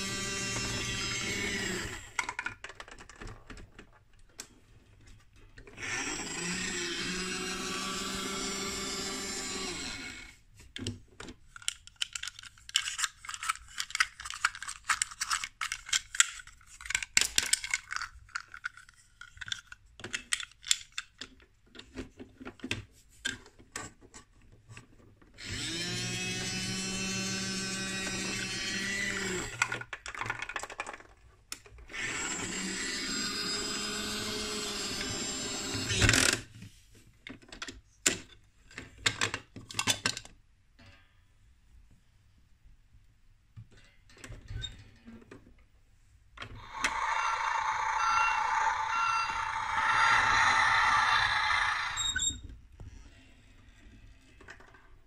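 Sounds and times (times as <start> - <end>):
toy truck whirring: 0.0 - 3.2, 5.7 - 10.4, 25.4 - 30.8, 31.9 - 36.5, 46.4 - 52.5
toy truck plastic clicking and rattling: 0.0 - 9.4, 10.6 - 40.4, 46.4 - 52.5.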